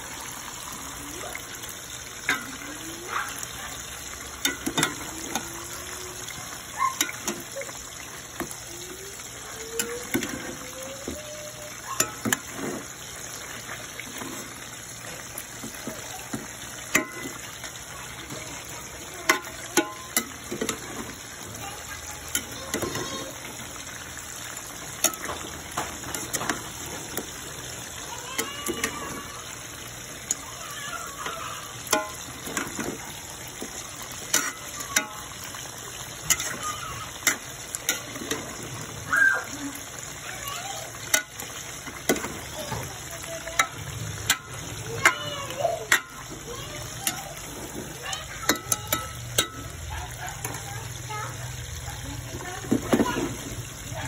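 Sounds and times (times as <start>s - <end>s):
chicken sizzling in hot oil: 0.0s - 54.0s
spoon clinking and scraping pot: 4.4s - 5.5s, 11.9s - 12.9s, 15.6s - 17.6s, 19.3s - 21.2s, 31.8s - 33.0s, 33.6s - 35.6s, 36.2s - 38.7s, 43.6s - 50.6s.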